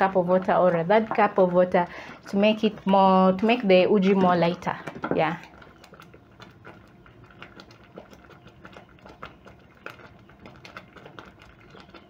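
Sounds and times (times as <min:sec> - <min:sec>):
porridge bubbles popping: 0:00.0 - 0:12.0.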